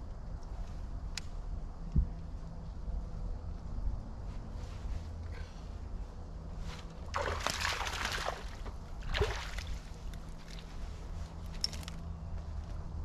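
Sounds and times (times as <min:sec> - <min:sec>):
water sloshing against boat hull: 0:07.0 - 0:10.7.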